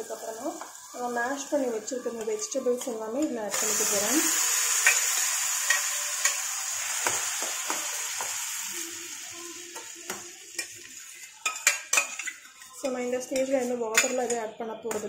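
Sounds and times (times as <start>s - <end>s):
vegetables sizzling in butter: 0.0s - 13.9s
spoon tapping and scraping a pan: 4.8s - 6.4s, 9.8s - 15.0s.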